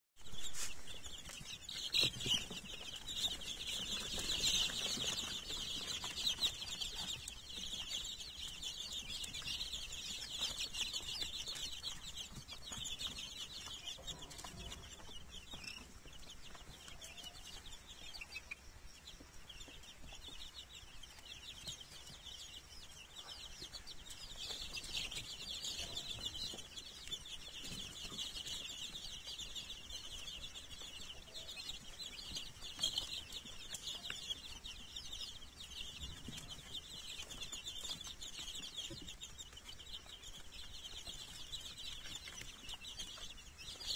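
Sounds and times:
chicks peeping: 0:00.2 - 0:43.9.

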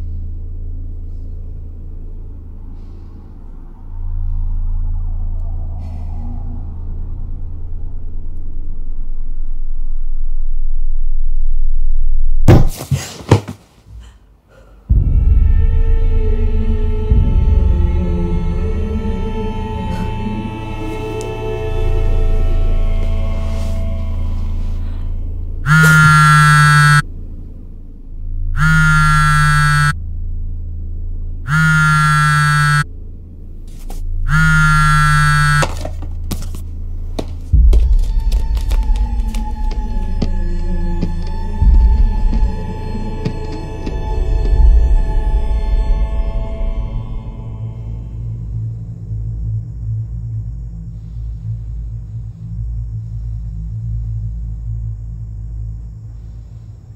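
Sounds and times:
ominous music: 0:00.0 - 0:11.5, 0:14.9 - 0:35.5, 0:36.8 - 0:56.6
low rumbling drone: 0:00.0 - 0:12.5, 0:14.9 - 0:56.9
smartphone buzzing: 0:25.6 - 0:27.0, 0:28.6 - 0:30.0, 0:31.5 - 0:32.8, 0:34.3 - 0:35.8.

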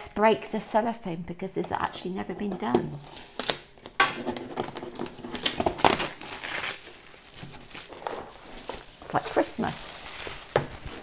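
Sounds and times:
cellophane crinkling and tearing: 0:03.0 - 0:11.0.

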